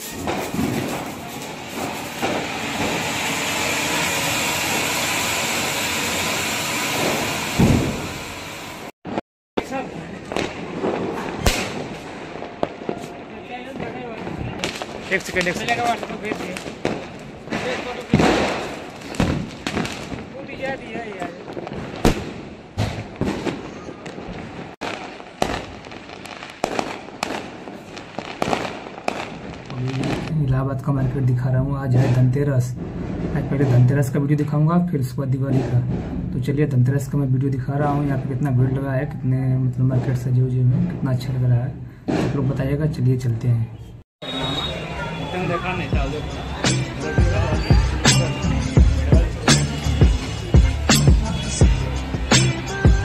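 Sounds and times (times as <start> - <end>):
firework fountain hissing: 0.0 - 8.9, 14.5 - 30.3, 44.2 - 51.1
sudden loud thump: 7.0 - 8.3, 19.2 - 19.9.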